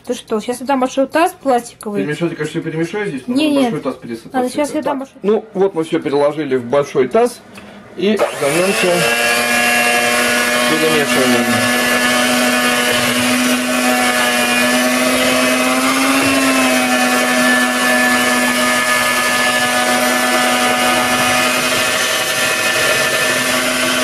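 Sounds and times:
electric hand mixer whine: 0:08.2 - 0:24.0.

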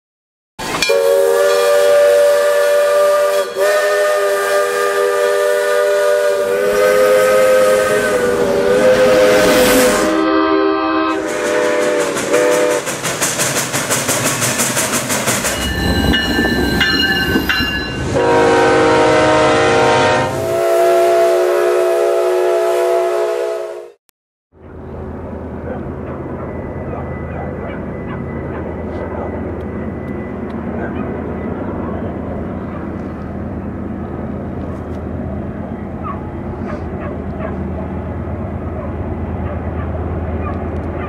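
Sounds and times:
steam locomotive chime whistle: 0:00.6 - 0:12.8, 0:15.4 - 0:24.0
low train horn: 0:00.8 - 0:12.8, 0:17.0 - 0:24.0
fast rhythmic train clatter: 0:11.2 - 0:18.0.

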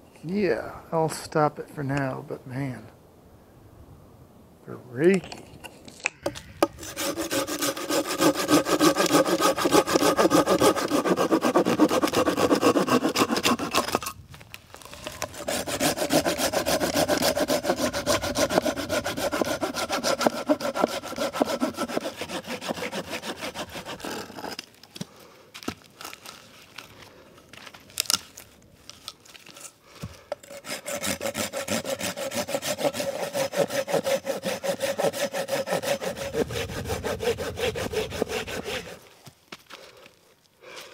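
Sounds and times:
saw cutting through wood: 0:06.7 - 0:14.1, 0:14.9 - 0:24.6, 0:30.4 - 0:39.1.

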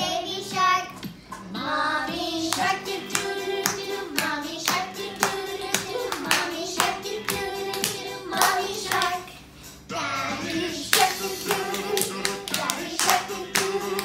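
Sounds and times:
children singing: 0:01.6 - 0:09.3, 0:09.9 - 0:14.0
children clapping a steady beat: 0:02.2 - 0:09.3, 0:10.8 - 0:14.0.

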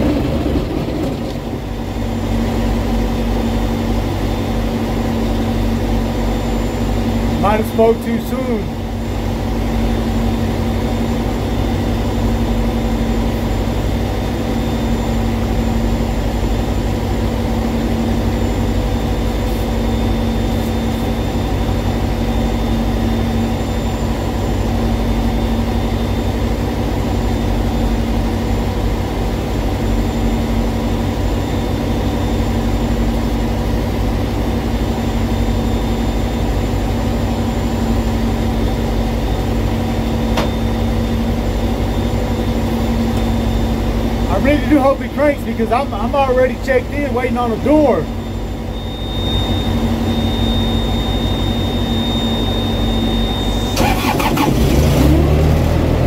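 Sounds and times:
diesel engine idling: 0:36.5 - 0:48.2, 0:53.5 - 0:56.0.

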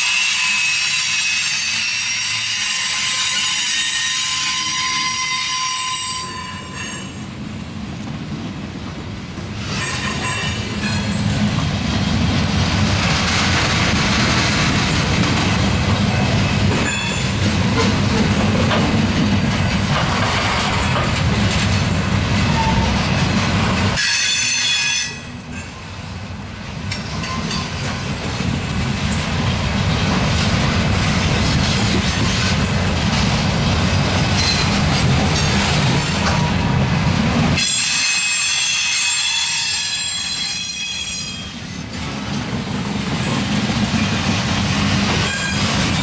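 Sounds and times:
high wheel squeal: 0:00.0 - 0:07.2, 0:37.6 - 0:41.7, 0:45.2 - 0:46.0
train wheels rumbling and clattering: 0:00.0 - 0:46.0.

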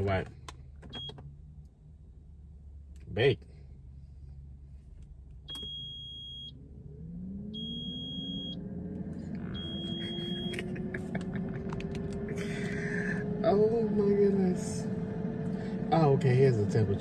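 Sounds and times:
air fryer beeps: 0:05.5 - 0:06.5, 0:07.6 - 0:08.6, 0:09.6 - 0:10.6.

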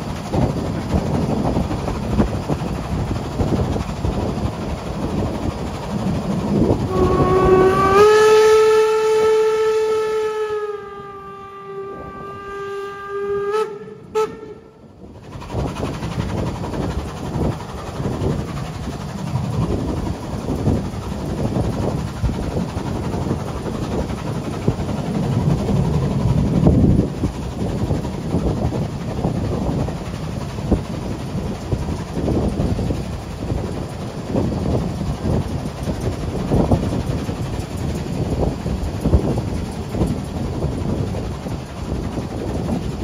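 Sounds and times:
train rumble and rail clatter: 0:00.0 - 0:43.0
steam whistle blast: 0:06.9 - 0:14.8.

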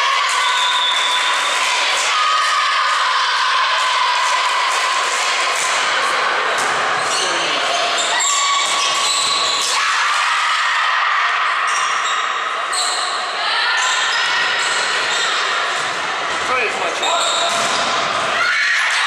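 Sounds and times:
sneakers squeaking on wooden floor: 0:07.0 - 0:09.7, 0:16.5 - 0:17.9.

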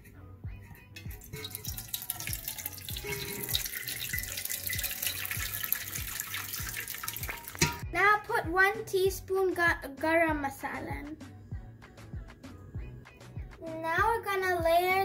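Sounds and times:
thick curry pouring and splatting: 0:01.0 - 0:07.8.

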